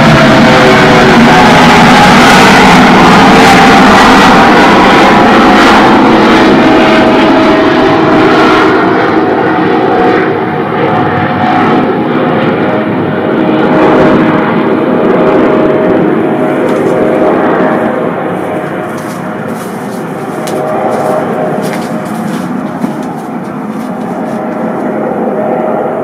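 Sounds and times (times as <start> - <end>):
drone propellers whining: 14.2 - 26.0.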